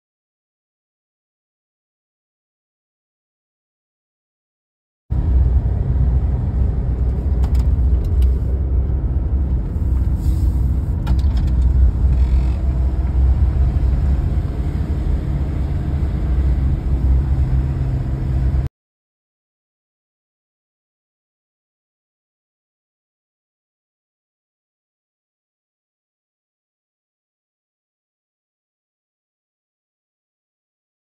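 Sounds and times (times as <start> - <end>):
car rumbling on dirt road: 5.1 - 18.7.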